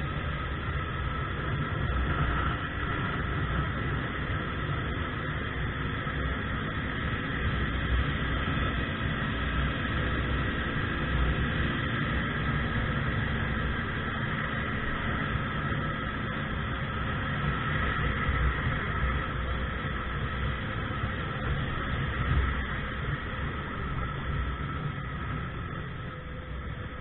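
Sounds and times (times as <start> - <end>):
small scooter engine drone: 0.0 - 27.0.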